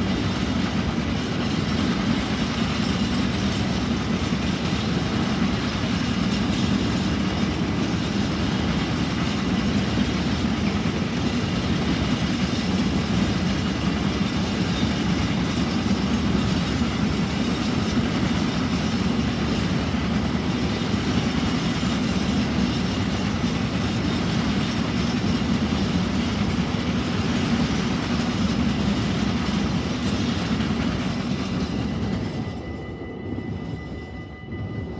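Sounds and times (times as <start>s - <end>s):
freight train rumbling past: 0.0s - 34.9s.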